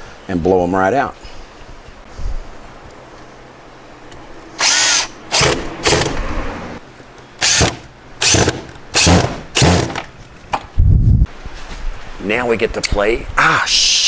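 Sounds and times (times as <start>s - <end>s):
power drill driving screws: 4.6s - 6.2s, 7.4s - 10.0s.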